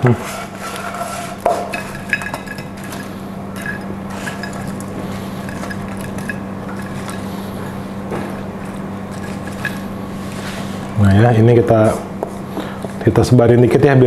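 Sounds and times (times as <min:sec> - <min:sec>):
steady low hum: 0:00.0 - 0:14.0
wooden spatula scraping wok: 0:00.1 - 0:11.0.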